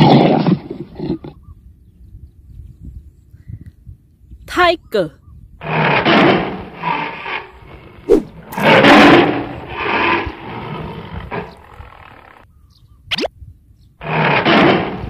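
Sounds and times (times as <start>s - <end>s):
tiger roaring: 0.0s - 1.4s, 5.6s - 12.4s, 14.0s - 15.0s.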